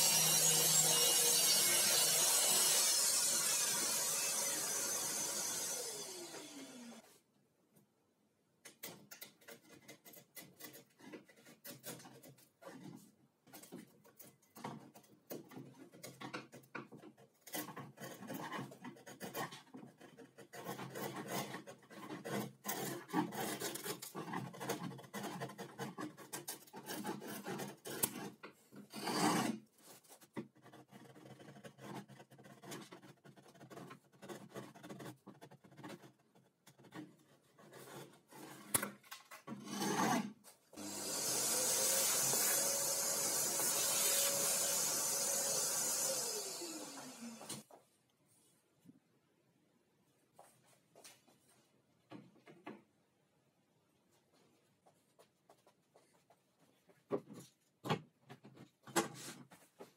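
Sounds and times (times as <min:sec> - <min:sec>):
chisel scraping wood: 0:08.8 - 0:38.8.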